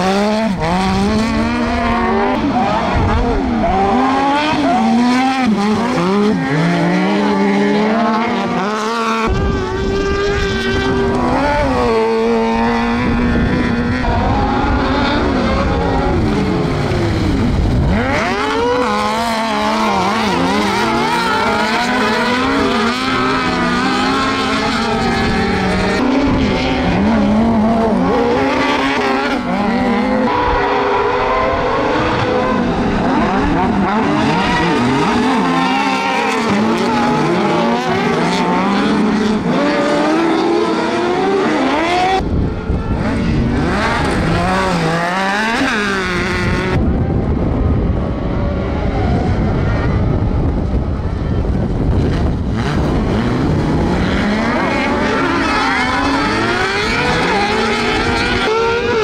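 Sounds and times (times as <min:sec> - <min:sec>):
nearby engine revving sharply: 0:00.0 - 0:46.8, 0:52.1 - 0:59.0
buggy engines racing: 0:00.0 - 0:59.0.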